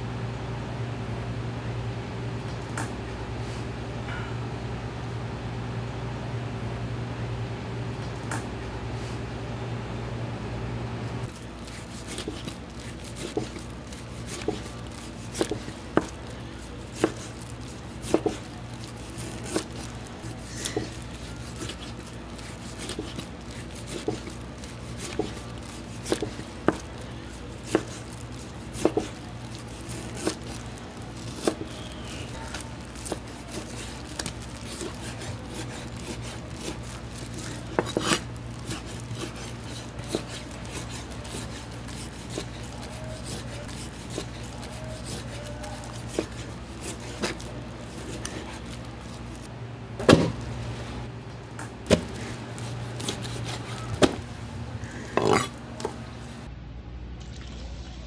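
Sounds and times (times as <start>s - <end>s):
steady low hum: 0.0s - 58.0s
knife slicing on cutting board: 22.6s - 26.9s, 28.7s - 29.2s, 37.4s - 45.4s.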